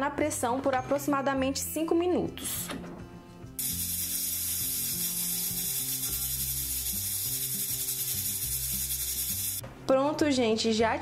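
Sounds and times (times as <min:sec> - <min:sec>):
pressure cooker valve rattling: 0:03.6 - 0:09.6
steam hissing: 0:03.6 - 0:09.6.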